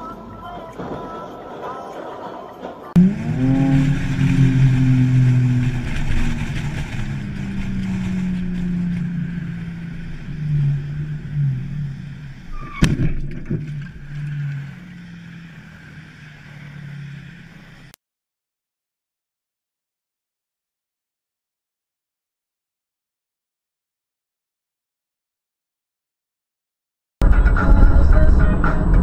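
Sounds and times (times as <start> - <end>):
car engine and road hum: 0.0 - 18.0, 27.2 - 29.0
car crash: 0.3 - 17.3.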